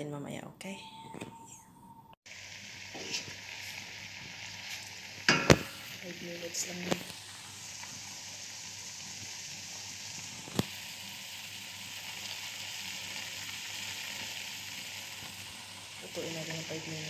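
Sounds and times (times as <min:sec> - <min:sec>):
shrimp sizzling in a pot: 0:02.3 - 0:17.0.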